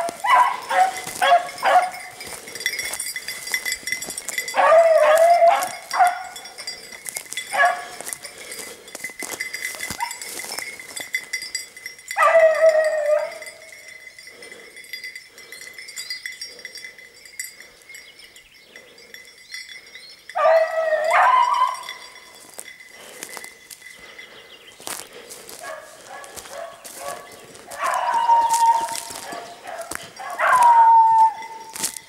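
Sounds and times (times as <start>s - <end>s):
dog baying: 0.0s - 2.7s, 4.2s - 6.8s, 7.5s - 8.5s, 12.2s - 13.7s, 20.4s - 22.1s, 25.2s - 32.0s.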